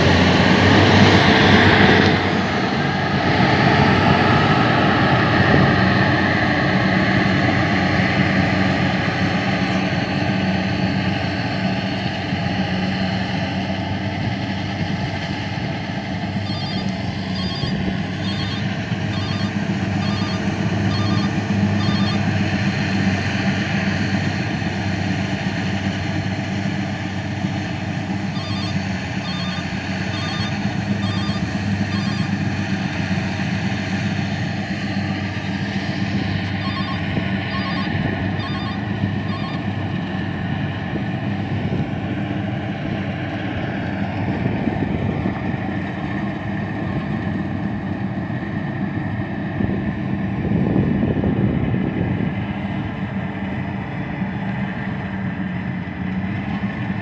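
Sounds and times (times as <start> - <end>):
harvester diesel engine running: 0.0 - 57.0
high electronic double beep: 16.4 - 22.3, 28.3 - 32.4, 36.6 - 39.6.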